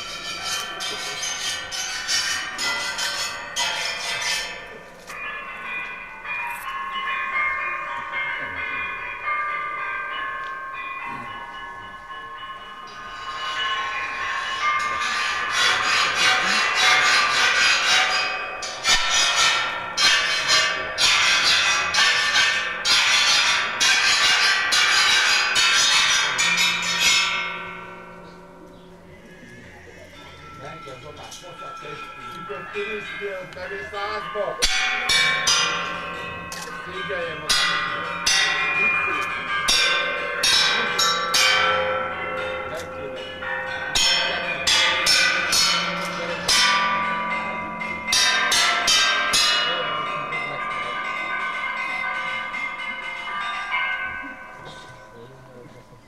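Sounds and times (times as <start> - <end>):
metal sculpture strikes ringing: 0.0 - 55.8
rasping metal scrapes: 0.2 - 4.5.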